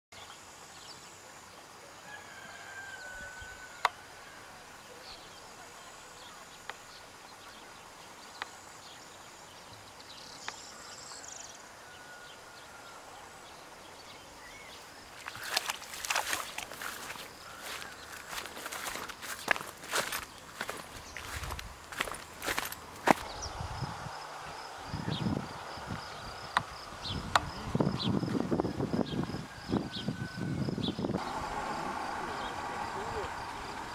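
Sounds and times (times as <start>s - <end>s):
faint whistling birdsong: 2.1s - 31.5s
rustling and crunching footsteps: 15.2s - 23.3s.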